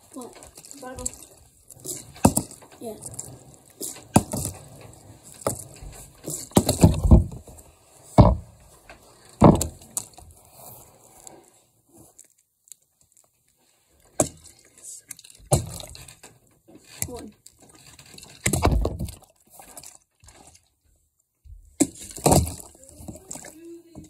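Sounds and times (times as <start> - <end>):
plastic bottle knocking: 9.4 - 9.8.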